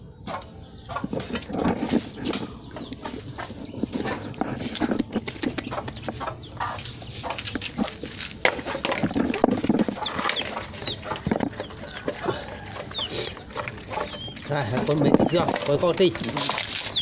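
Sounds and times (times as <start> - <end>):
chickens clucking: 0.0 - 17.0
dogs eating from a pan: 7.6 - 17.0.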